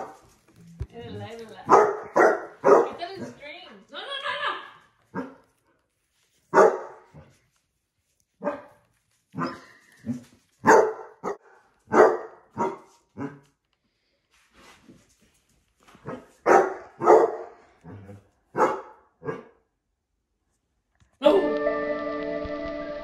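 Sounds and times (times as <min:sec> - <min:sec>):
dog barking: 0:01.6 - 0:03.4, 0:05.1 - 0:05.5, 0:06.5 - 0:07.3, 0:08.4 - 0:13.4, 0:16.0 - 0:19.6.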